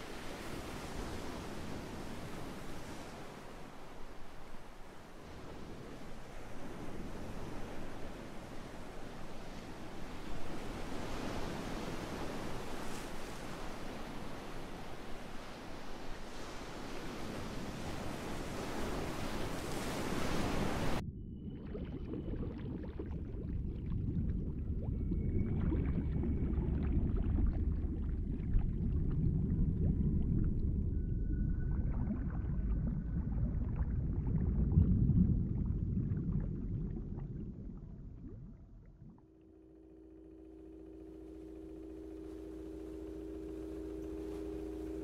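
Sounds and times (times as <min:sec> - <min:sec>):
ocean surf: 0:00.0 - 0:21.0, 0:40.4 - 0:45.0
muffled underwater rumble: 0:20.5 - 0:45.0
high steady tones: 0:39.2 - 0:45.0.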